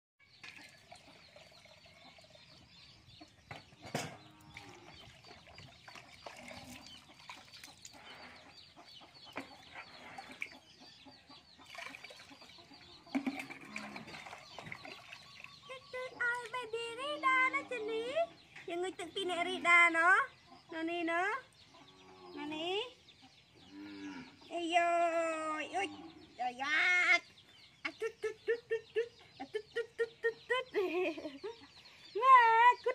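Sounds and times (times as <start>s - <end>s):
chickens clucking: 0.6s - 24.5s.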